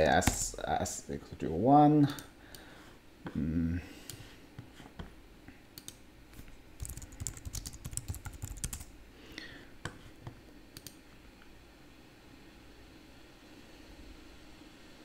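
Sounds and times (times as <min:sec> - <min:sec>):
computer keyboard typing: 0:06.8 - 0:08.9.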